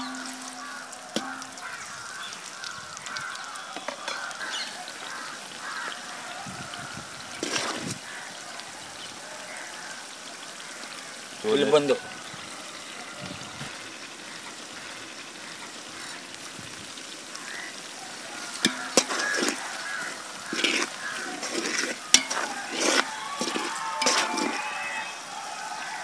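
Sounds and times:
metal spatula scraping pot: 0.0 - 1.8, 7.4 - 7.9, 18.5 - 24.7
onions sizzling in hot oil: 0.0 - 26.0.

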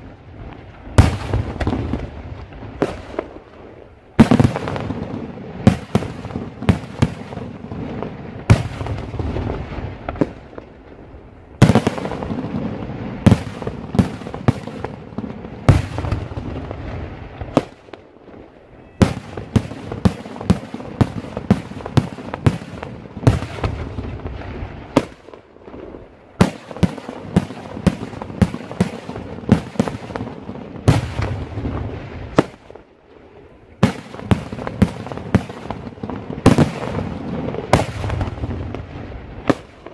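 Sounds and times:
fireworks bursting with sharp bangs: 0.0 - 39.9.

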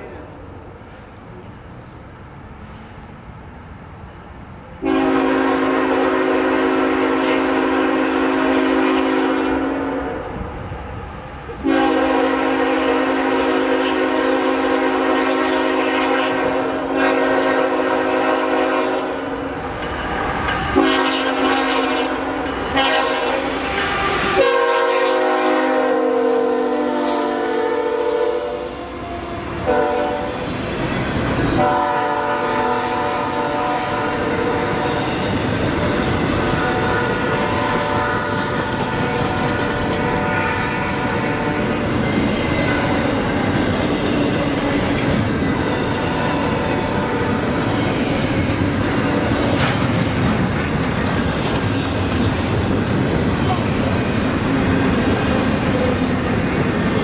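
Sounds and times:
train air horn blasts: 4.8 - 10.4, 11.6 - 19.6, 20.3 - 30.5, 31.6 - 35.1, 36.4 - 43.3, 45.6 - 47.6.

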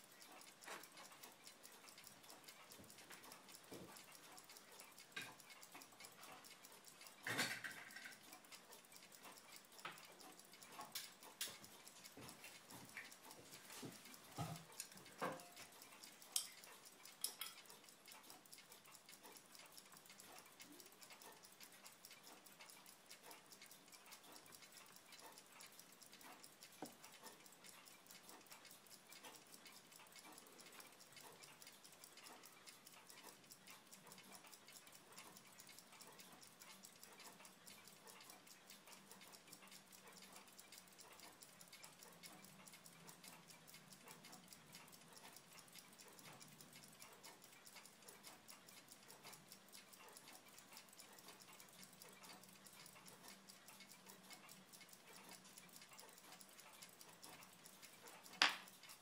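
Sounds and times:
fast faint ticking: 0.0 - 59.0.

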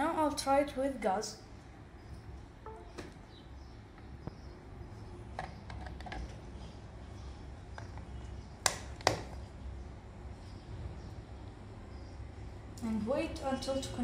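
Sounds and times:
sharp plastic clicks: 7.8 - 9.3.

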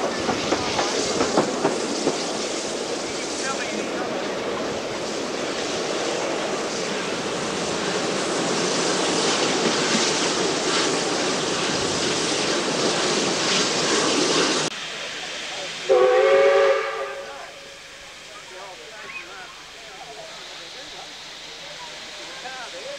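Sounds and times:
train carriage running noise: 0.0 - 22.9
steam locomotive whistle: 15.8 - 18.0.

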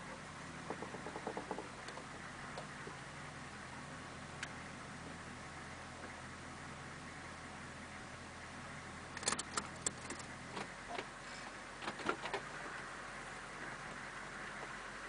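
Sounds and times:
diesel engine idling hum: 0.0 - 15.0
clicks and rattles: 0.7 - 2.7, 9.2 - 11.1.

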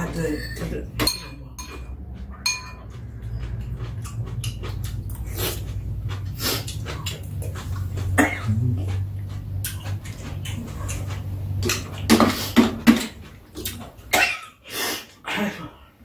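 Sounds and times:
steady low hum: 0.0 - 14.7
slurping and chewing: 0.0 - 15.2
spoons clicking against bowls: 0.4 - 3.0
person coughing: 8.2 - 8.7, 14.1 - 14.6, 15.2 - 15.8.

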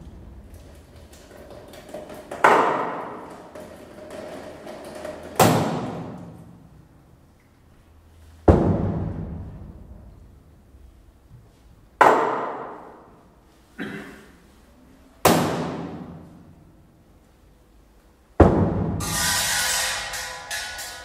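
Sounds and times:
struck percussion hits ringing: 18.9 - 21.0.

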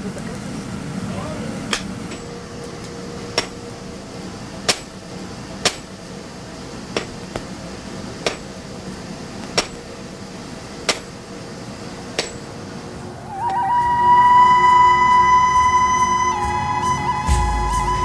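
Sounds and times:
hammer striking metal on anvil: 1.7 - 2.4, 3.3 - 3.7, 4.6 - 5.0, 5.6 - 5.9, 6.9 - 7.5, 8.2 - 8.5, 9.6 - 9.9, 10.8 - 11.2, 12.2 - 12.5.

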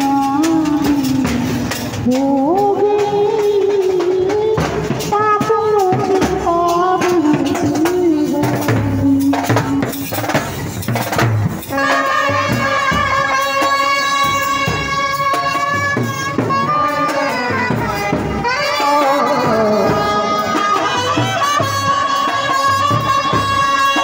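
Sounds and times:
steady drumming: 0.0 - 24.0
trumpets playing melody: 11.6 - 24.0.

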